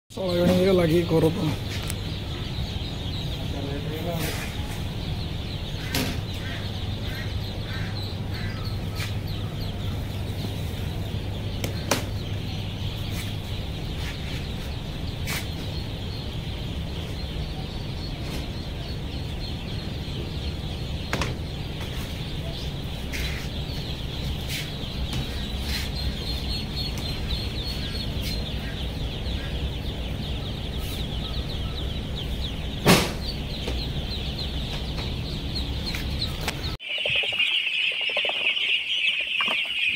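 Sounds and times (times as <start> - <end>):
ducklings peeping: 0.1 - 39.9
sharp knocks: 32.8 - 33.9.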